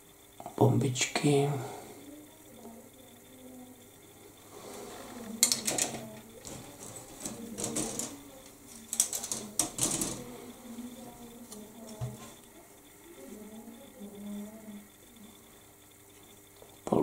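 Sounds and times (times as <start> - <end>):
plastic sprues clicking together: 5.4 - 10.3.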